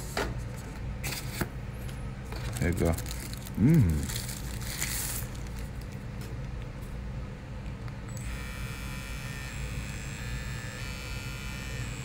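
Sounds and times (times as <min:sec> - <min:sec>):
hair trimmer buzzing: 0:08.1 - 0:12.0.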